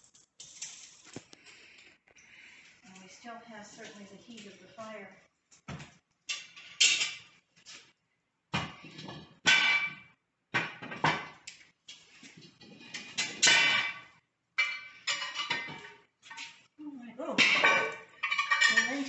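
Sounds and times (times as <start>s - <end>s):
iron utensil clanking on pots: 12.8s - 16.4s, 17.4s - 19.0s.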